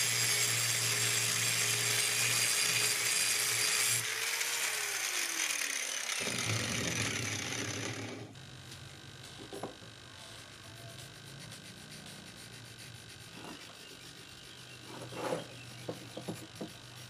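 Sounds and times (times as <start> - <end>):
marker scratching on metal: 10.2 - 17.0.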